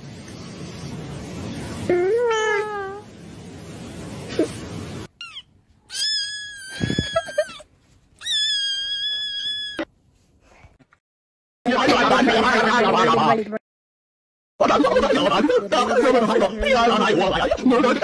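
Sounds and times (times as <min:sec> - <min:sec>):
falling meow-like call: 0:05.2 - 0:07.6, 0:08.2 - 0:09.9
high cat-like wails: 0:05.2 - 0:09.9.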